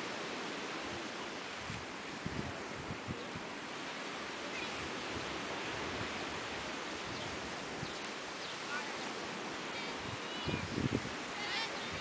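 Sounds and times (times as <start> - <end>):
gentle surf: 0.0 - 12.0
wind: 0.0 - 12.0.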